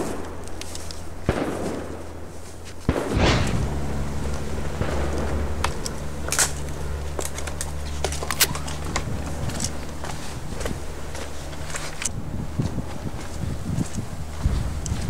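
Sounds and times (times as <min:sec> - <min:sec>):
footsteps crunching over twigs: 0:00.0 - 0:15.0
low steady drone: 0:00.0 - 0:15.0
twigs snapping and crackling: 0:00.4 - 0:01.1, 0:04.3 - 0:12.2.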